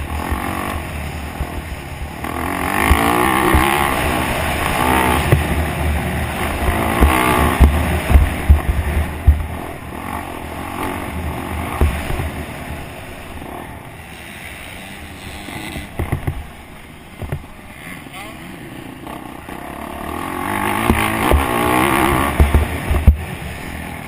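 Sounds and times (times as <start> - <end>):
dirt bike engine revving: 0.0 - 24.0
low thumps: 2.8 - 4.0, 4.6 - 5.8, 6.4 - 9.8, 11.6 - 12.4, 15.8 - 17.6, 20.8 - 23.3.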